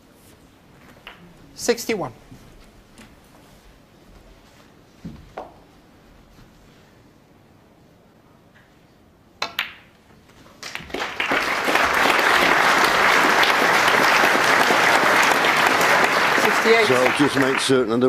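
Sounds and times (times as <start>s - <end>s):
snooker cue and balls clicking: 0.3s - 1.4s, 5.0s - 5.8s, 9.4s - 11.0s
audience applauding: 10.6s - 18.0s.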